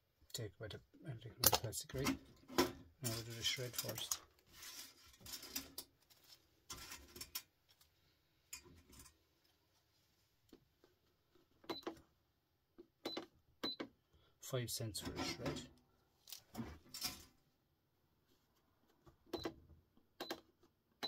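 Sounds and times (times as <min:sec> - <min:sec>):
clicks of metal parts handled: 0:01.4 - 0:04.2
rustling of wire: 0:03.0 - 0:10.2, 0:16.2 - 0:17.4.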